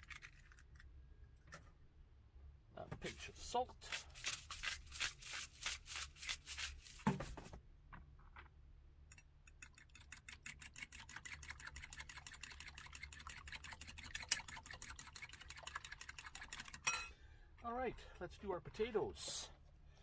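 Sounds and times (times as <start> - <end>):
fork beating eggs in a bowl: 3.1 - 7.0, 9.5 - 17.1.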